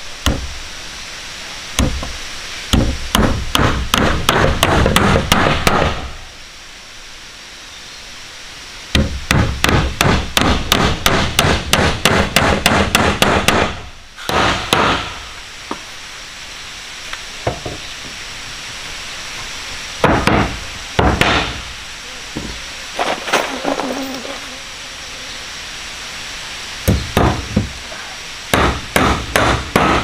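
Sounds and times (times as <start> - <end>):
hammer striking wood: 0.2 - 0.5, 1.8 - 2.1, 2.7 - 6.1, 8.9 - 15.2, 20.0 - 21.6, 26.9 - 27.7, 28.5 - 30.0.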